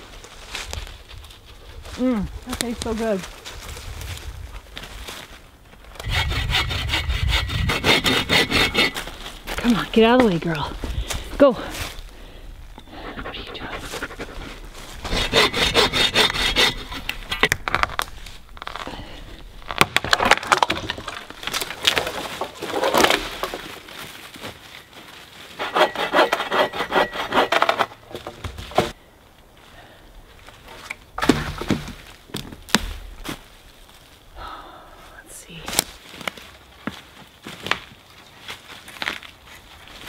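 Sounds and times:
hand saw cutting wood: 0:06.0 - 0:09.3, 0:13.8 - 0:17.5, 0:25.5 - 0:28.9.

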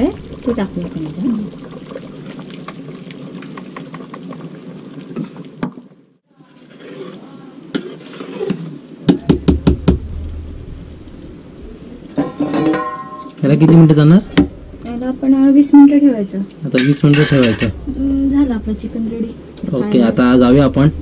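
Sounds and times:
steady noisy background: 0:07.2 - 0:21.0.

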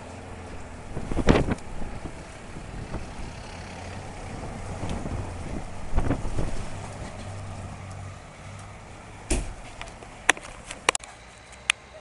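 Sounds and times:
thunder rumbling: 0:00.3 - 0:07.8.

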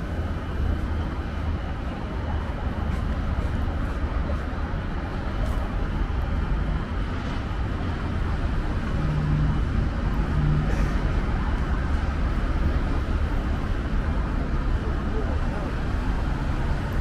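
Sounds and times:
cars passing rumble: 0:00.0 - 0:17.0.

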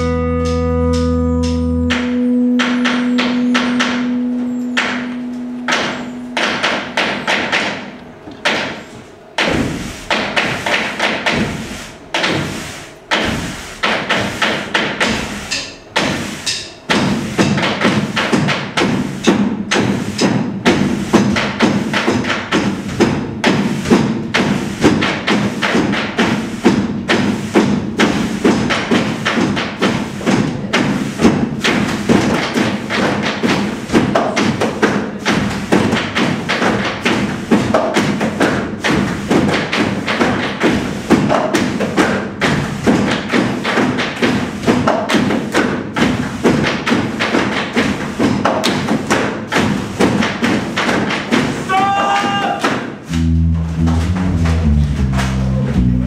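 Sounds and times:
music: 0:00.0 - 0:07.9, 0:53.1 - 0:56.0
sticks tapping on stage floor: 0:46.6 - 0:55.9.

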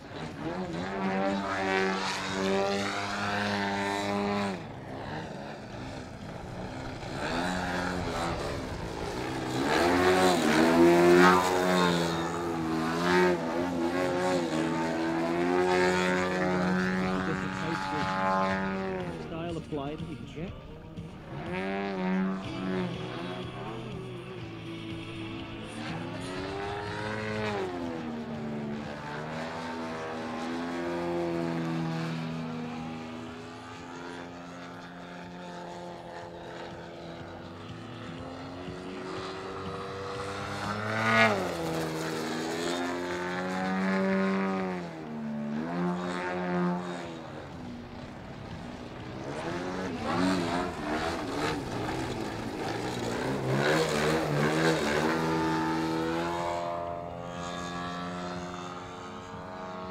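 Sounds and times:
model plane engine drone: 0:00.0 - 0:59.9.

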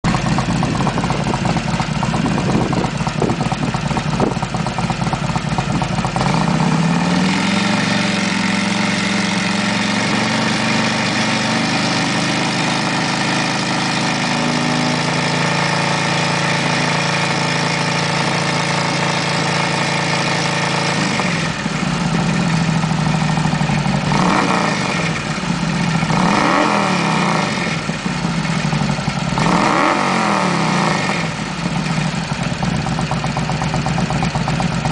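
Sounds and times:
motorcycle engine idling and revving: 0:00.0 - 0:34.9.

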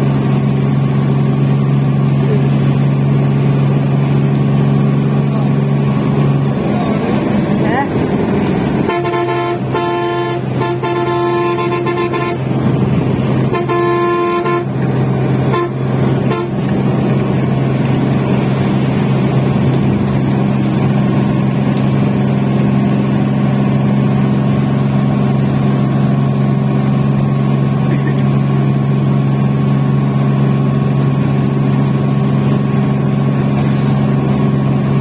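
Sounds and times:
bus engine running steadily: 0:00.0 - 0:35.0
bus horn toots and blasts: 0:08.4 - 0:17.3.

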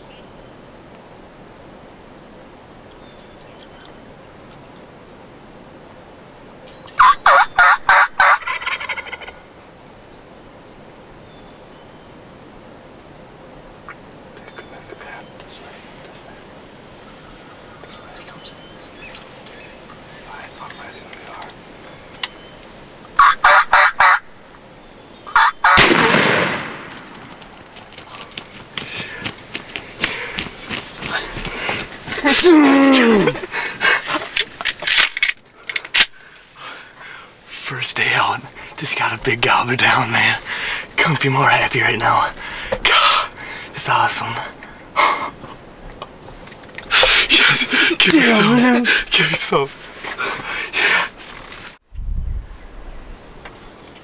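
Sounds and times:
wild turkey gobbling: 0:06.9 - 0:09.5, 0:23.2 - 0:24.3, 0:25.3 - 0:25.9
shotgun blast echoing: 0:25.8 - 0:27.3.

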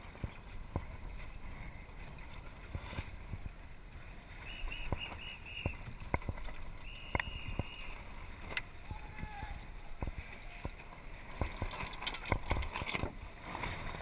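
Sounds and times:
water lapping against hull: 0:00.0 - 0:14.0
wind noise on microphone: 0:04.4 - 0:14.0.

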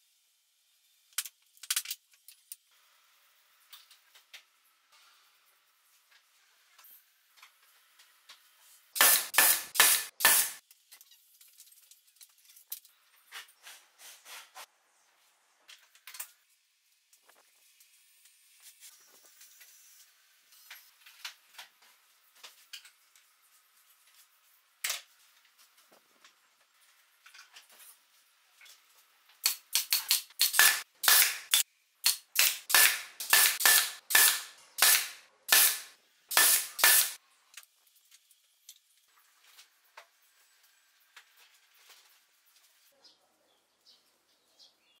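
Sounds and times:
pneumatic nailer firing into wood: 0:09.0 - 0:10.6, 0:29.5 - 0:37.2.

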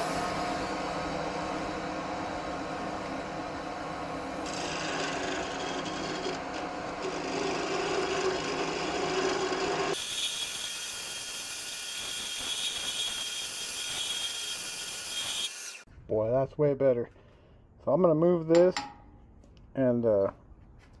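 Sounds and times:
wood lathe motor hum: 0:00.0 - 0:10.6
turning tool scraping wood: 0:04.5 - 0:10.0.

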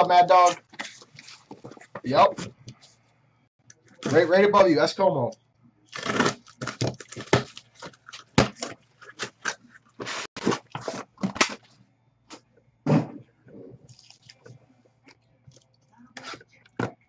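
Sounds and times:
cardboard and plastic wrap scraping: 0:00.1 - 0:02.5, 0:06.0 - 0:11.7.

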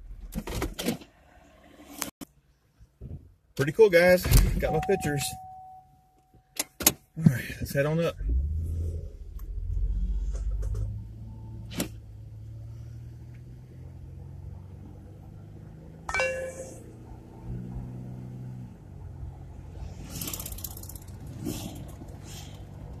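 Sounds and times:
road noise: 0:00.0 - 0:05.4, 0:06.5 - 0:23.0
car engine hum: 0:07.3 - 0:23.0.

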